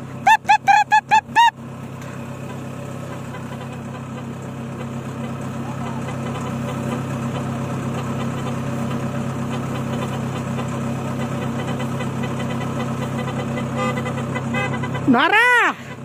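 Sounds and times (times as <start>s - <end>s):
combine harvester running: 0.0s - 16.0s.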